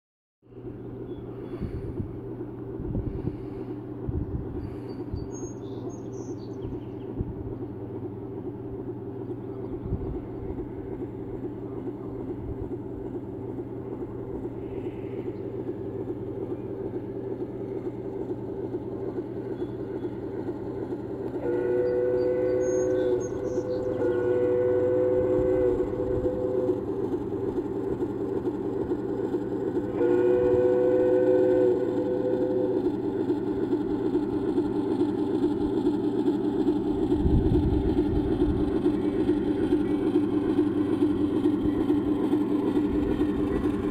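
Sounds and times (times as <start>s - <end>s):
model train running on track: 0.5s - 43.9s
two-note train horn blasts: 21.3s - 27.1s, 29.8s - 33.0s.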